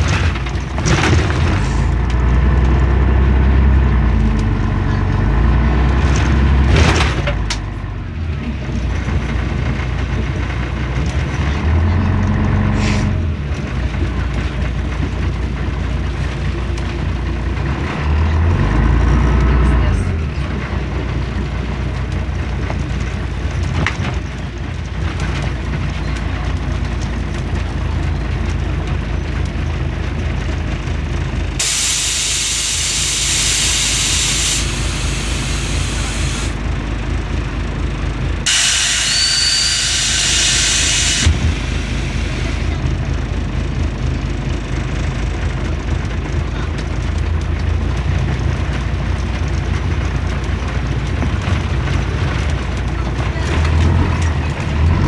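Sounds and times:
bus diesel engine rumbling: 0.0 - 55.0
compressed air hisses: 31.6 - 36.6, 38.5 - 42.1.

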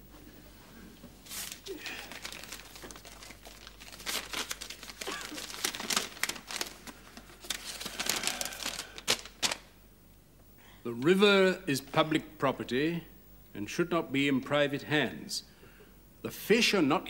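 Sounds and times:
paper crinkling and rustling: 1.2 - 9.7
paper envelope tearing: 1.3 - 9.7.

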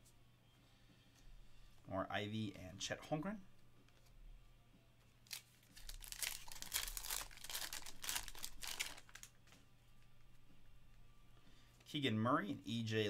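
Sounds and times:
wrapper crackling and rustling: 5.2 - 9.4.

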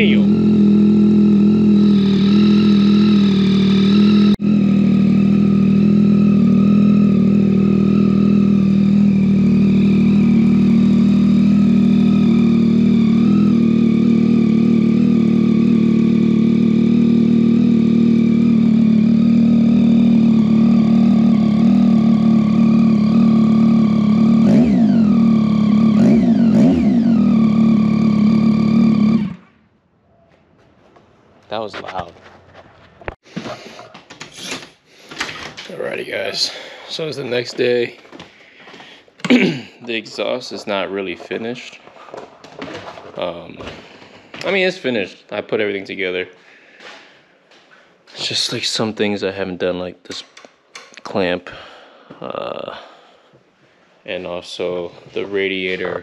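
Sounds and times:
motorcycle engine idling: 0.0 - 29.4.

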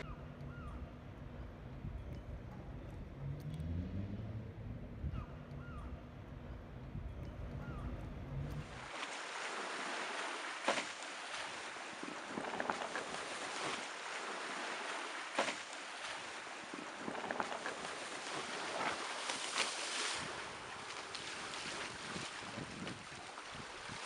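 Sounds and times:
water rushing along hull: 0.0 - 24.0
waves splashing against hull: 8.5 - 24.0.

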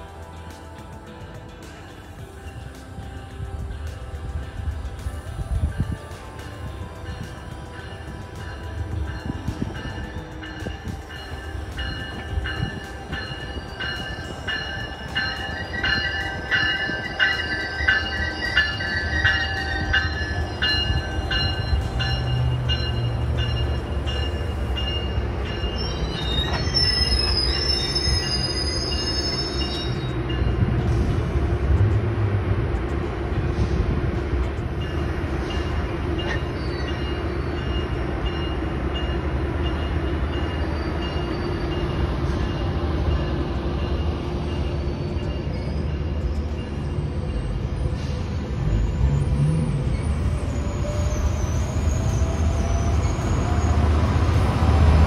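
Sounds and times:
train rumble: 0.0 - 55.0
high-pitched wheel squeal: 25.5 - 30.4, 44.4 - 54.4.

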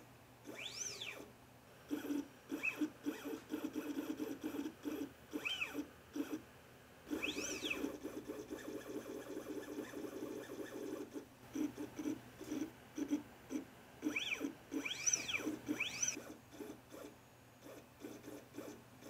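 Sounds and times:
stepper motor buzzing: 0.4 - 1.3, 1.9 - 6.4, 7.1 - 11.1, 12.0 - 18.8
motor whine rising and falling: 7.1 - 8.0, 14.1 - 16.2.

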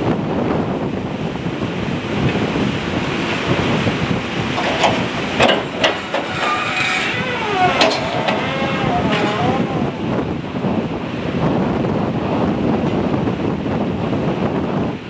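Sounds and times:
water: 0.0 - 15.0
wind buffeting microphone: 0.0 - 15.0.

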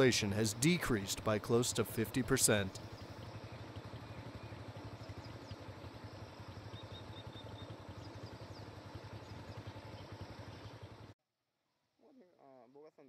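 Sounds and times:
roadside background noise: 0.0 - 11.2
vehicle engine humming: 0.0 - 11.2
faint bird chirps: 2.7 - 11.1.

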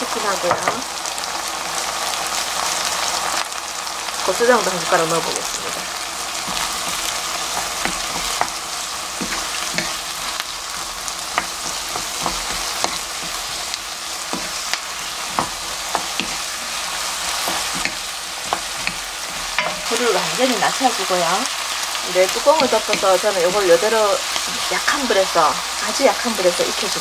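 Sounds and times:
food sizzling in frying pan: 0.0 - 27.0
wooden spoon scraping pan: 5.4 - 21.6.

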